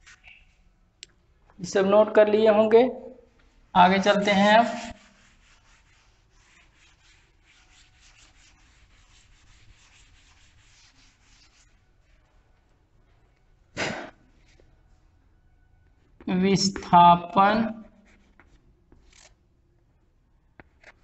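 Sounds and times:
duster rubbing chalkboard: 4.0 - 12.1.

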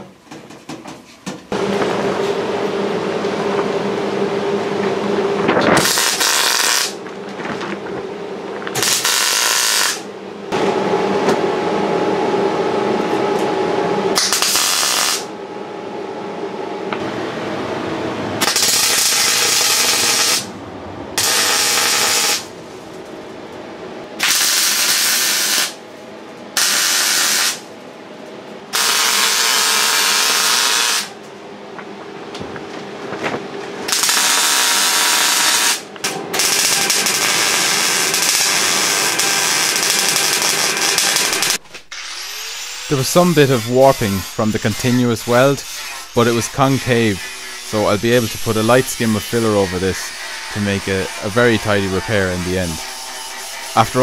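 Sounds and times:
welder arc crackling: 5.8 - 7.8, 8.6 - 10.1, 14.2 - 15.3, 18.4 - 20.5, 21.2 - 22.5, 24.2 - 25.8, 26.6 - 27.6, 28.8 - 31.2, 33.9 - 54.0.

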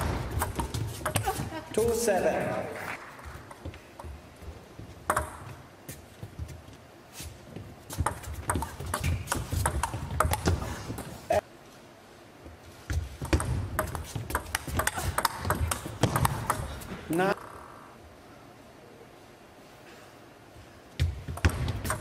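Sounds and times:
table tennis ball clicking: 5.1 - 5.4, 13.2 - 16.7.

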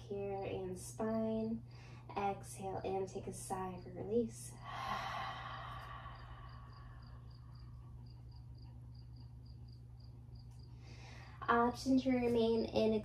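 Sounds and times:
low steady hum: 0.0 - 13.0
breathy exhale: 4.6 - 7.5.

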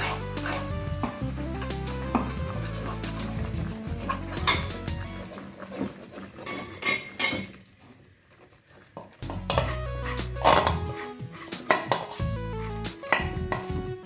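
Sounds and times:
metal spoon scraping a pan: 0.0 - 7.6, 9.2 - 12.3.

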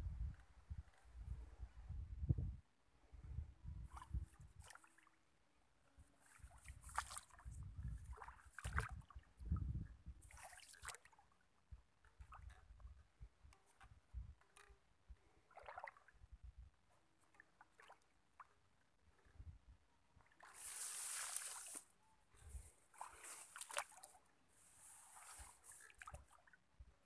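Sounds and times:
footsteps sloshing through water: 3.8 - 5.2, 6.2 - 9.3, 10.2 - 11.3, 13.8 - 16.2, 17.0 - 18.7, 20.2 - 21.9, 22.9 - 26.6
rice stalks rustling: 20.4 - 21.8.

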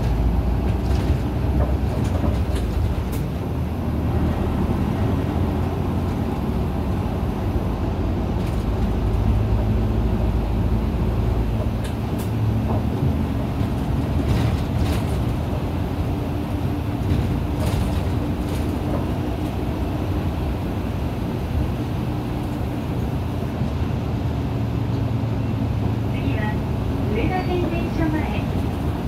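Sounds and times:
bus engine drone: 0.0 - 29.0
road noise: 0.0 - 29.0.

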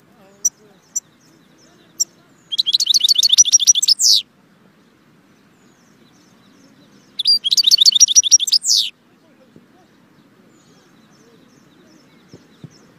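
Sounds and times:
goldfinch twittering song: 0.2 - 4.2, 4.8 - 8.9.

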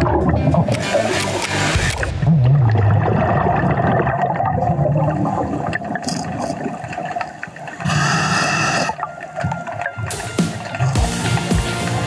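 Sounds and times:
bubbly rumble of exhaled air: 2.0 - 8.3
hissing inhale through regulator: 7.8 - 9.0.

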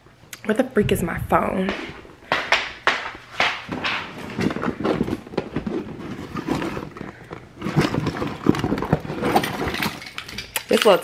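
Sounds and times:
footsteps: 1.3 - 9.5
camera handling rustles and knocks: 2.3 - 10.4.

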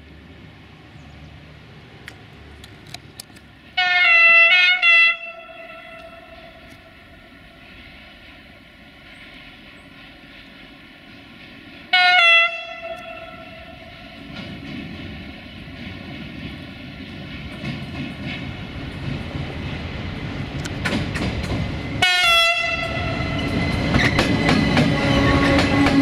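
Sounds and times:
train rumbling: 0.0 - 26.0
locomotive horn blasts: 3.8 - 7.0, 11.9 - 14.0, 22.0 - 23.5.

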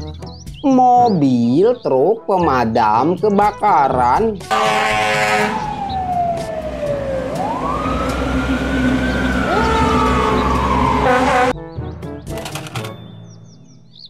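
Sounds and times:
air horn blast: 4.5 - 5.8, 9.4 - 11.6
truck engine rumble: 4.5 - 11.5
fire truck sirens wailing: 4.5 - 11.6.

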